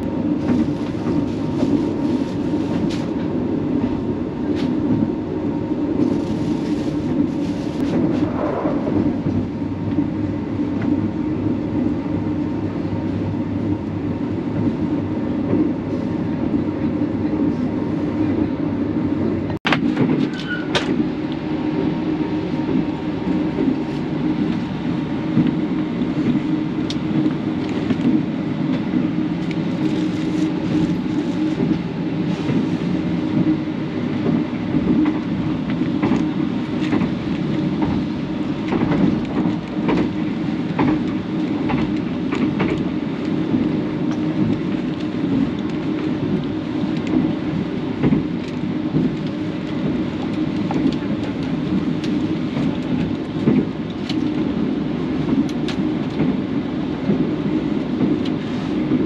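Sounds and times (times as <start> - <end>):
train rumble: 0.0 - 59.0.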